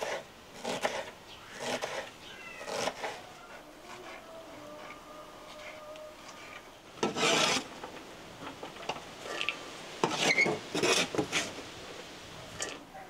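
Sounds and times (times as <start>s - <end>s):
short rasping scrapes: 0.0s - 7.7s, 10.0s - 11.6s.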